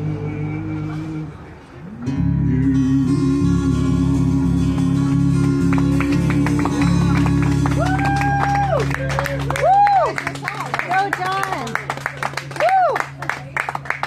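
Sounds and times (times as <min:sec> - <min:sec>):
live band with guitar: 0:01.6 - 0:14.0
people clapping: 0:05.4 - 0:14.0.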